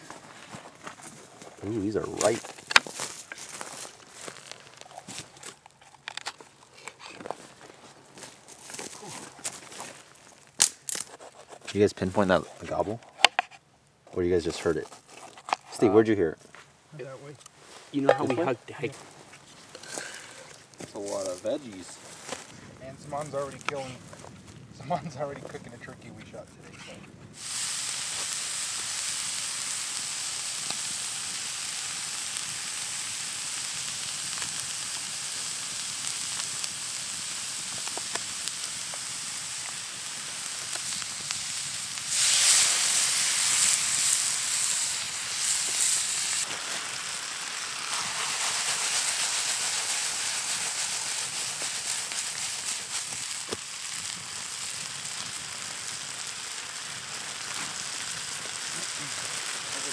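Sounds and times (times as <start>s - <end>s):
campfire crackling: 0.0s - 59.9s
meat sizzling in a frying pan: 27.4s - 59.9s.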